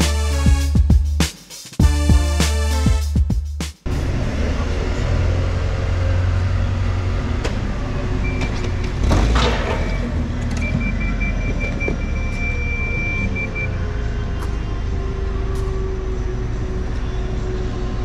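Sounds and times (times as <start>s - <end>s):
forklift engine rumble: 3.9s - 18.0s.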